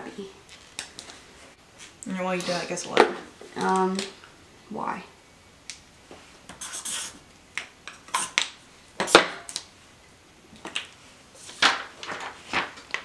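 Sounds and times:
paper rustling: 10.6s - 13.0s.

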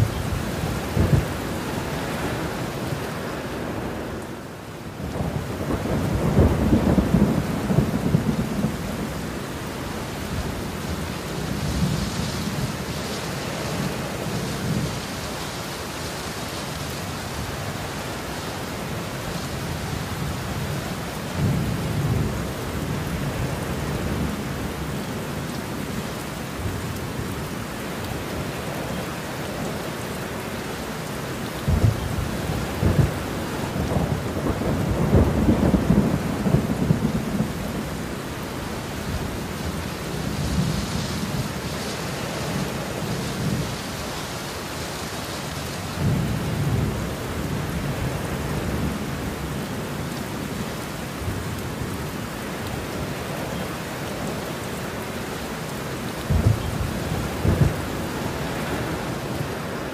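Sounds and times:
heavy rain falling: 0.0s - 59.9s
rolling thunder: 5.1s - 9.2s, 31.7s - 38.0s, 56.2s - 58.9s.

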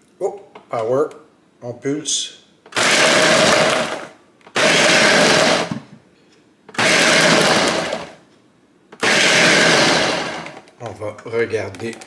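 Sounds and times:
blender pulsing: 2.7s - 5.8s, 6.8s - 8.2s, 9.0s - 10.6s.

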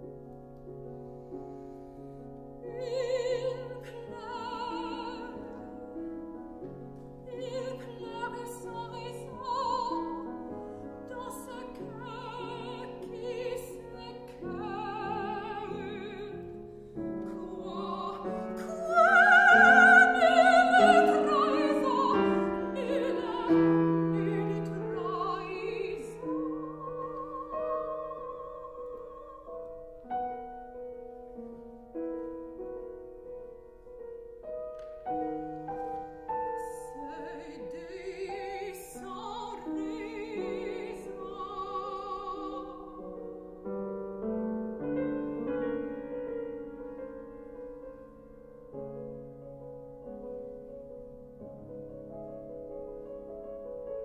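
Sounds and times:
grand piano: 0.0s - 54.0s
woman singing with vibrato: 2.7s - 5.6s, 7.3s - 10.3s, 11.1s - 16.5s, 17.3s - 29.7s, 36.6s - 43.1s.

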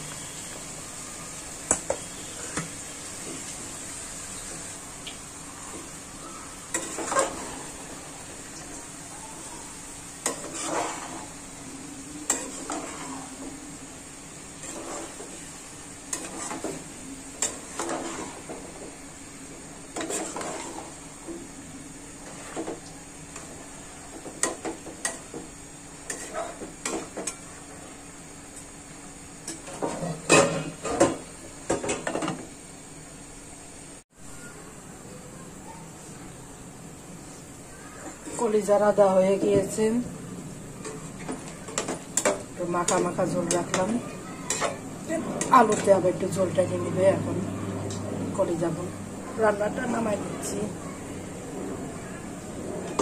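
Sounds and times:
metal spoon scraping a pan: 6.7s - 7.8s, 10.2s - 11.4s, 12.2s - 13.5s, 14.6s - 15.4s, 16.1s - 18.7s, 19.9s - 21.0s, 26.0s - 27.5s, 40.8s - 46.3s.

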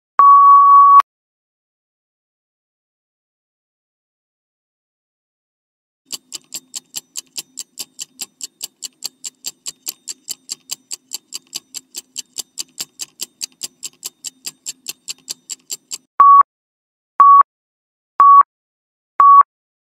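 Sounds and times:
clock ticking: 6.1s - 16.1s.

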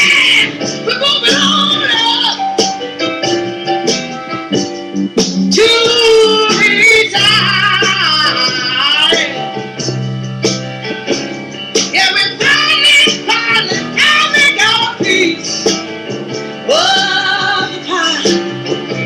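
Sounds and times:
woman singing: 0.0s - 2.4s, 5.6s - 9.4s, 11.9s - 15.5s, 16.7s - 18.5s
piano: 0.0s - 19.0s.

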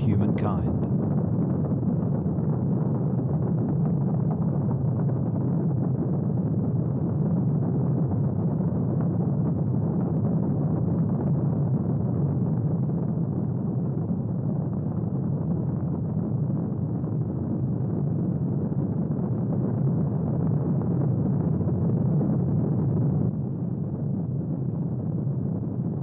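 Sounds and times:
rocket engines rumbling: 0.0s - 7.0s.

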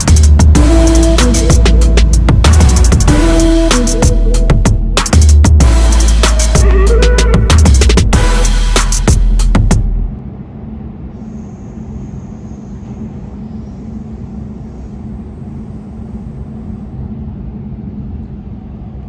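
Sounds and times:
train running rumble and hum: 0.0s - 19.0s
faint high whine: 10.1s - 19.0s.

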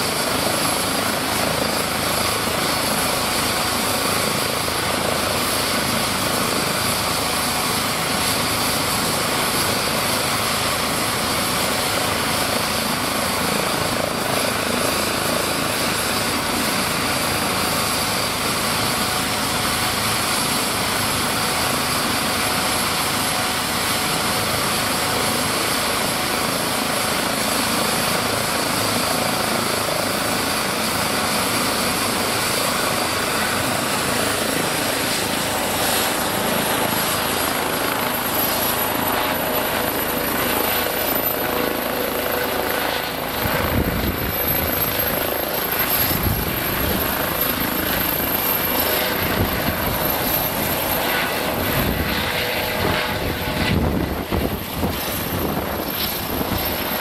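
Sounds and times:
helicopter rotor noise: 0.0s - 57.0s
turbine engine whine: 0.0s - 57.0s.

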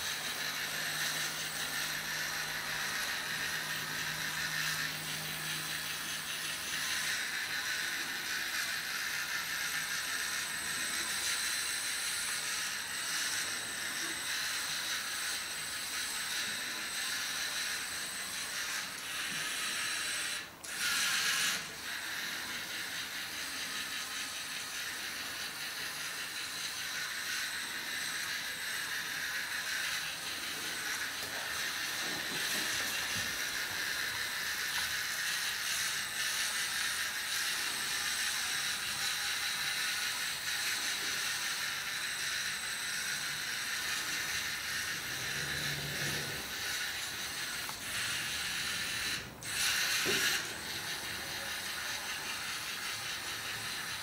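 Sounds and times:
robot motors whirring: 0.0s - 54.0s.

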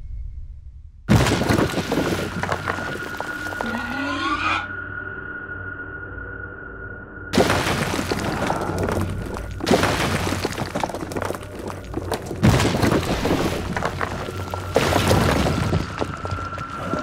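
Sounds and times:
crackling crashing noise: 1.1s - 3.6s, 7.4s - 17.0s.

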